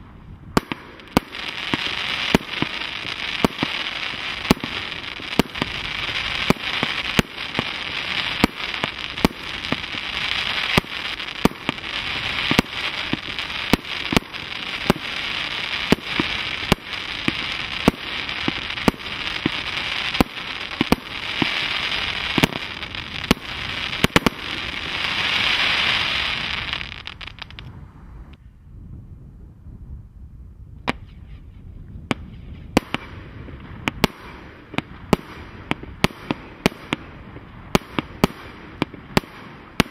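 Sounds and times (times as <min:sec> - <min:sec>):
firework shots: 0:00.5 - 0:27.8, 0:32.1 - 0:39.9.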